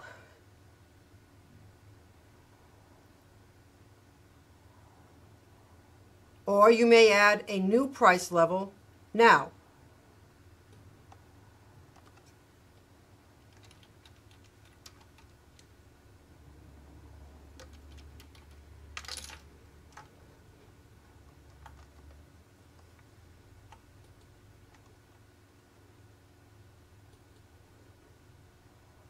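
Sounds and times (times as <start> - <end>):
computer keyboard typing: 11.9 - 15.8, 17.5 - 20.2, 21.1 - 25.2, 27.0 - 27.6.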